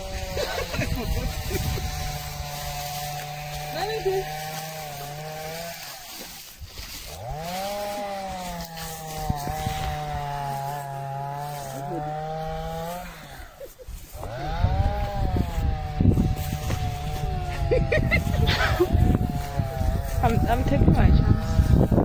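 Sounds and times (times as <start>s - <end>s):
chainsaw engine revving: 0.0s - 22.0s.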